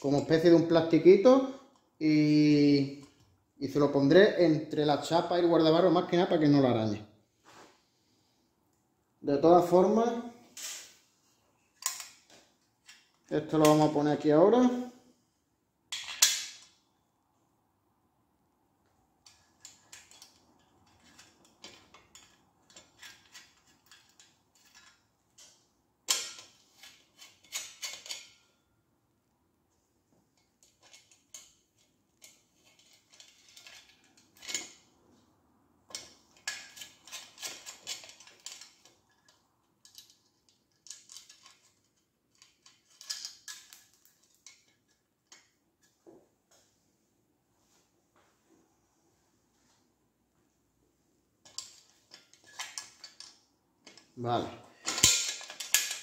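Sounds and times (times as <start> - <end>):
metal screws and bracket clinking: 11.8 - 13.9, 15.9 - 16.8, 19.2 - 28.5, 30.4 - 34.9, 35.9 - 45.6, 51.4 - 54.2, 54.8 - 56.0.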